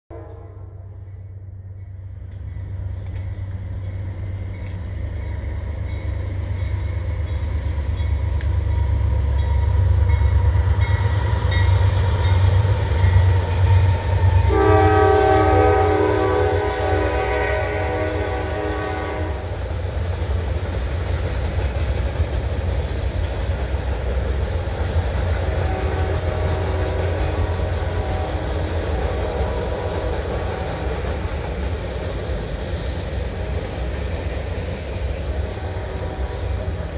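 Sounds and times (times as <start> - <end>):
locomotive horn chord: 0.1 - 1.3, 14.3 - 19.5, 25.5 - 30.8, 35.3 - 36.9
diesel locomotive engine rumbling: 0.1 - 36.9
train wheels rumbling on rail: 0.1 - 36.9.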